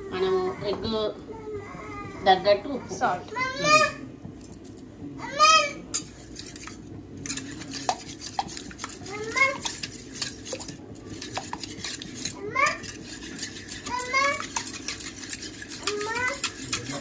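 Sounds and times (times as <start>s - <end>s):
whisk clinking in metal bowl: 5.9s - 17.0s.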